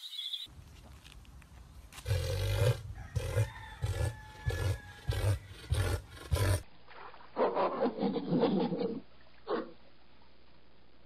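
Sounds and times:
rough animal call: 2.0 - 6.6.

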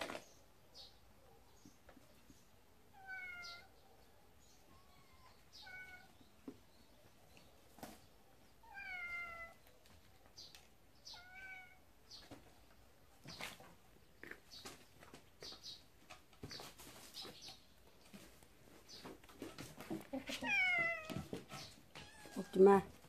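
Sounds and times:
cat meowing: 2.9 - 3.7, 4.7 - 6.2, 8.6 - 9.6, 11.1 - 11.8, 20.3 - 21.3, 21.9 - 22.6.

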